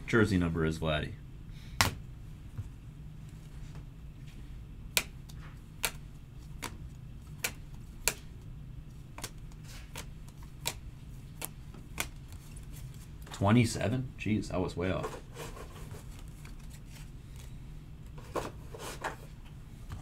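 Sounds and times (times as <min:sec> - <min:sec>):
steady low hum: 0:00.0 - 0:20.0
cards clicking and tapping: 0:04.9 - 0:12.8.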